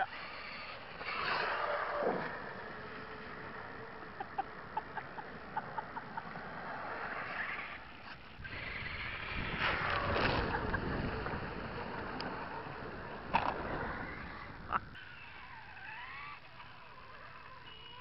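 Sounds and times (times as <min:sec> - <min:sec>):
toy truck splashing through puddle: 0:08.6 - 0:10.7.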